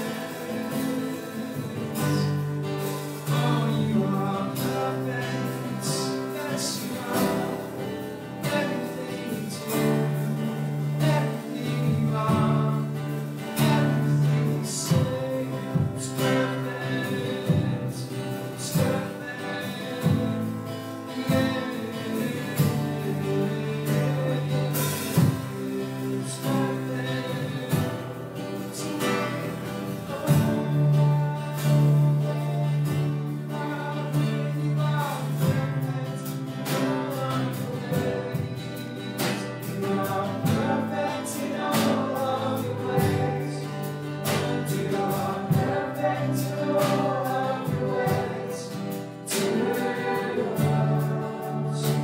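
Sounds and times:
drum kit beats: 0.0 - 52.0
guitar: 0.0 - 52.0
keyboards: 0.0 - 52.0
voices singing together: 0.0 - 52.0.

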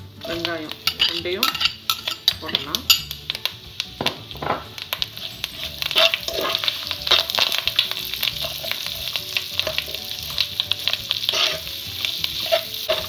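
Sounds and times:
onions sizzling in oil: 0.0 - 13.0
spatula scraping and clicking on pan: 0.2 - 3.4, 4.9 - 13.0.

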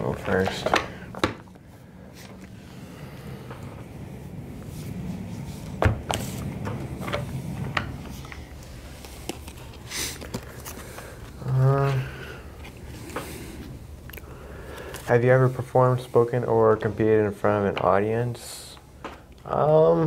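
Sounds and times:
person humming: 11.4 - 12.3.

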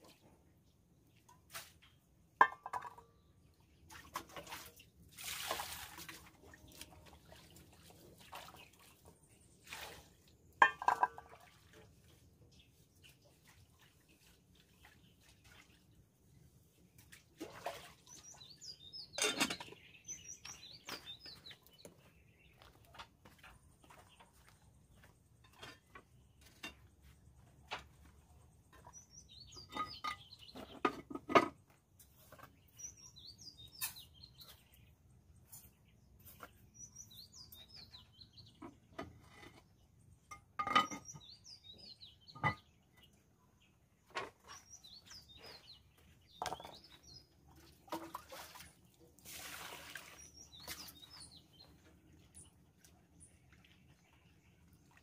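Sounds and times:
metal pots and dishes clanking: 2.4 - 3.2, 10.6 - 11.3, 19.1 - 19.8, 29.6 - 31.6, 40.3 - 41.3, 42.3 - 42.7
small birds chirping: 2.7 - 55.0
water splashing in a pot: 3.8 - 12.2, 47.6 - 51.2.

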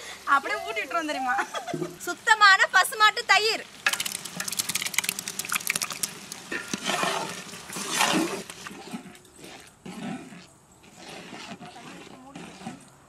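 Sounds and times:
masala sizzling and crackling: 0.0 - 10.4
curd pouring: 3.7 - 9.7
wet swishes of stirring: 3.9 - 12.9.

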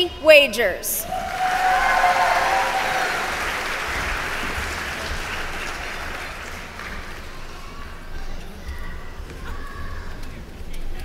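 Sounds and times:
audience applauding: 1.0 - 7.9.

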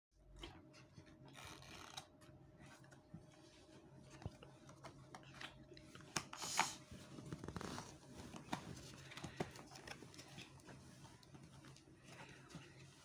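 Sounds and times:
packaging rustling: 6.9 - 13.0.

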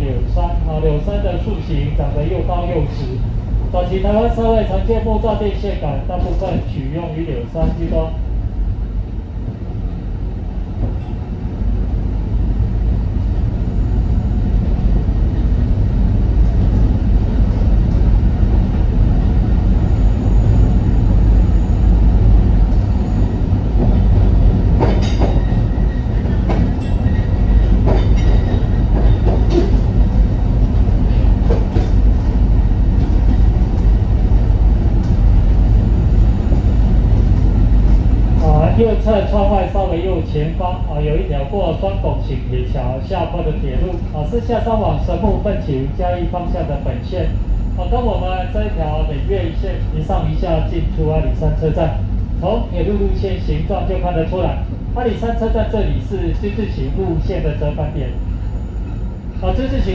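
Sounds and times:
train wheels rumbling on track: 0.0 - 59.9.

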